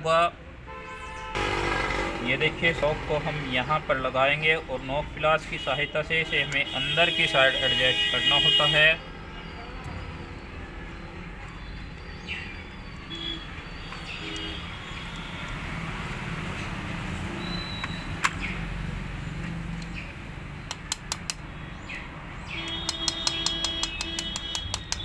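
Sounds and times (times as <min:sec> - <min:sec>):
sharp metal clicks: 0:20.6 - 0:21.5, 0:22.6 - 0:25.0.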